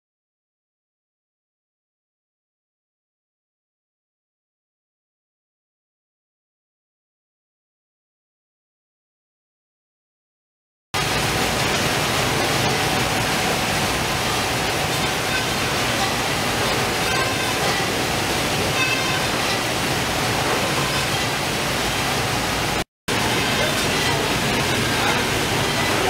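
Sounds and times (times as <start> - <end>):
fish processing machine running: 11.0 - 26.0
running water: 11.0 - 26.0.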